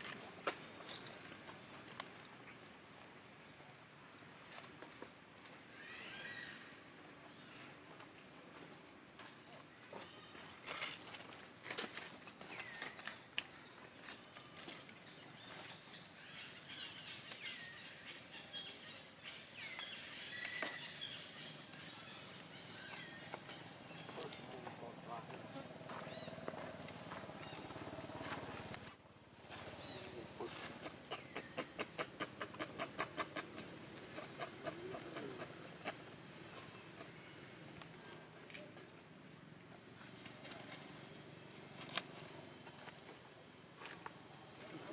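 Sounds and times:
monkey high calls: 5.8 - 6.7
monkey sharp clicks: 30.8 - 36.0
dry leaves rustling: 39.8 - 43.1.

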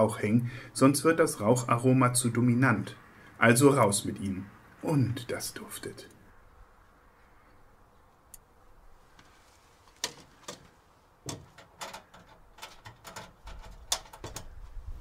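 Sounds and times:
light metallic clicks and knocks: 9.9 - 14.7
metal door shutting: 11.3 - 14.5.

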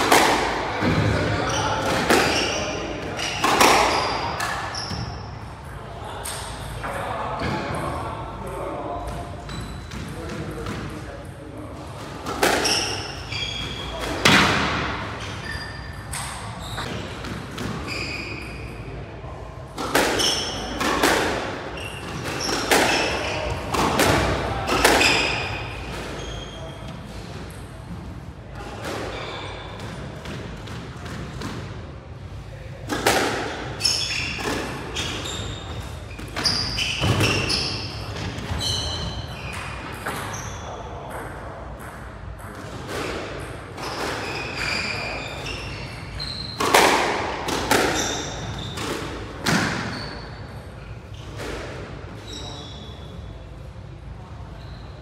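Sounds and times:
squash ball hitting rackets and walls: 0.0 - 11.2, 11.8 - 18.8, 19.6 - 31.9, 32.8 - 50.5, 51.1 - 52.5
shoes squeaking on wooden floor: 12.5 - 14.2, 17.8 - 18.6, 33.8 - 40.7, 43.8 - 46.8.

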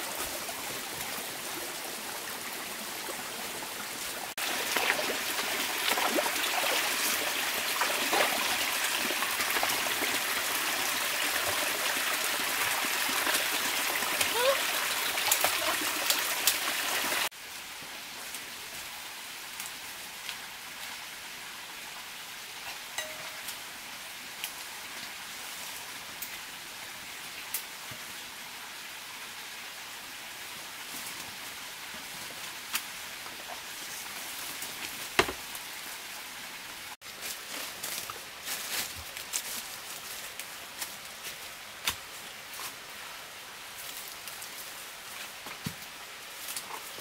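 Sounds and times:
water running over rocks: 0.0 - 47.0
forest background hiss: 17.3 - 47.0.

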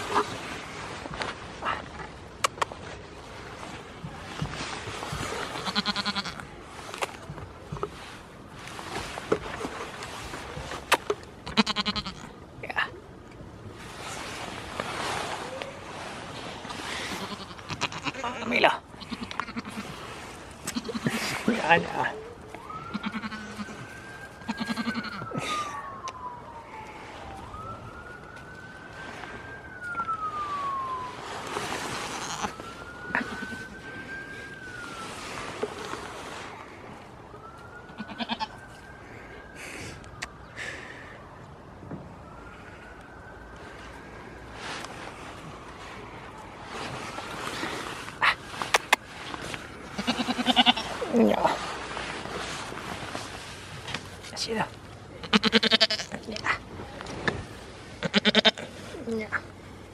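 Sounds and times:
goat bleating: 5.6 - 6.4, 11.5 - 12.3, 17.1 - 19.8, 20.7 - 21.2, 23.0 - 23.6, 24.5 - 25.2, 38.0 - 38.5, 50.0 - 50.9, 55.2 - 56.2, 58.0 - 58.7
emergency siren wailing: 21.2 - 55.2.

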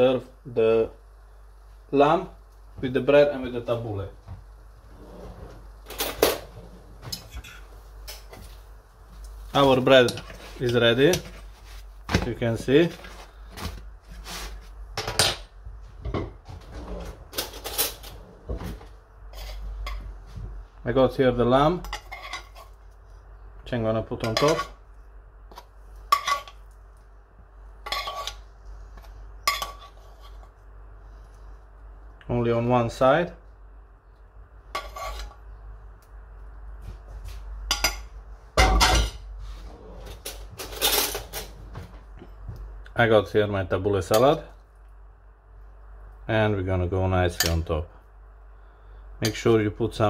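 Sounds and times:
metal cutlery and cookware clinking: 24.2 - 24.8, 29.4 - 30.0, 40.2 - 41.5.

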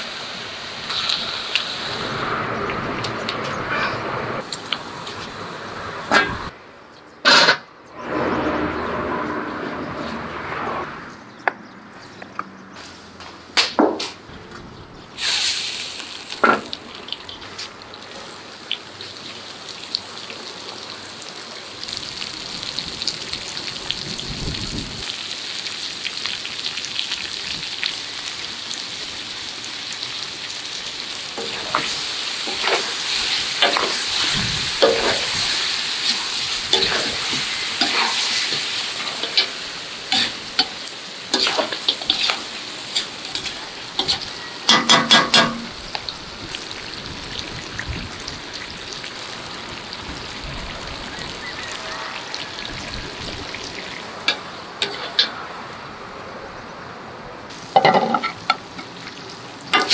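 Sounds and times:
meat and onions sizzling: 0.0 - 3.5, 15.2 - 56.0, 57.5 - 59.9
metal ladle scraping and clattering: 36.7 - 39.6, 41.4 - 42.4, 54.3 - 55.3.

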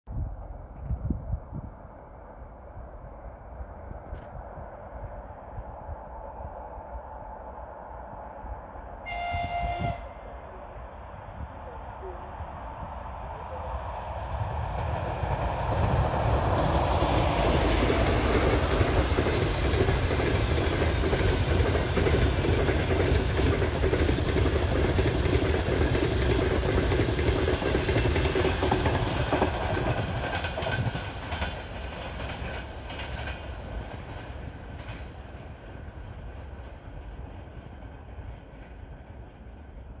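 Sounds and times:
electric locomotive passing: 0.1 - 40.0
train wheels clicking over rail joints: 14.8 - 37.3.

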